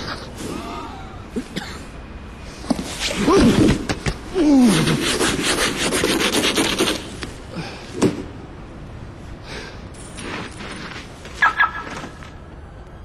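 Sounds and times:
scraping snow and ice off car: 10.0s - 12.3s.

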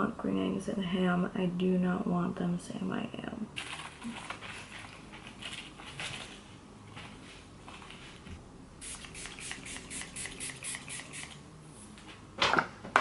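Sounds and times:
spray bottle spritzes: 8.8s - 11.4s.

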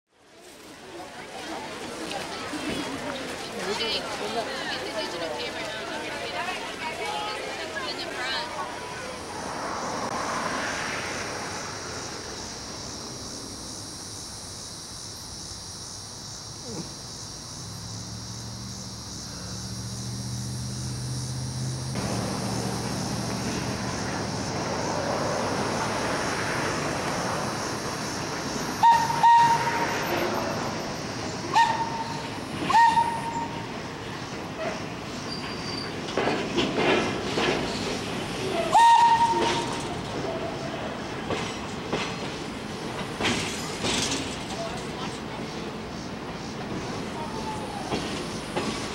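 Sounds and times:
train rumbling: 0.3s - 48.9s
train whistle toots: 28.8s - 30.2s, 31.5s - 33.7s, 38.5s - 39.8s.

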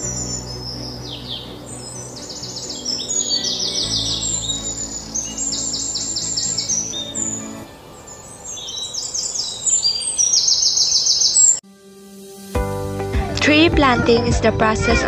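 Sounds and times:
soft music of low chords: 0.0s - 8.8s, 11.6s - 15.0s
bird chirping trills: 0.0s - 11.6s.

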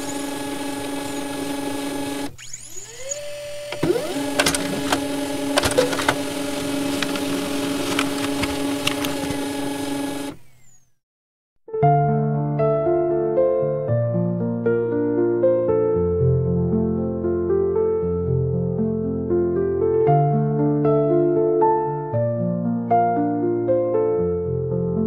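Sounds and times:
small motor whirring: 0.0s - 11.0s.

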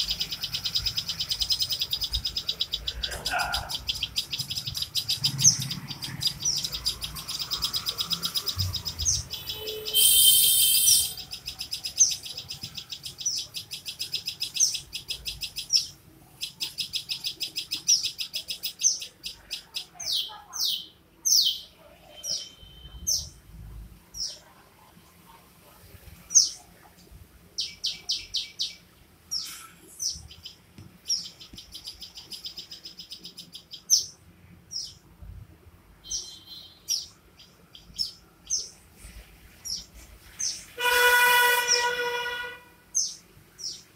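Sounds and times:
sharp downward-sweeping bird calls: 0.0s - 19.1s, 40.5s - 43.8s
fledgling begging chirps: 0.0s - 23.4s
harsh bird call burst: 5.2s - 11.4s.

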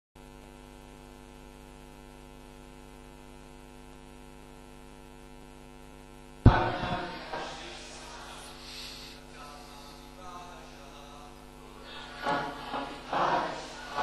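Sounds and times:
electrical mains hum: 1.6s - 14.0s
sudden loud bang: 6.5s - 8.7s.

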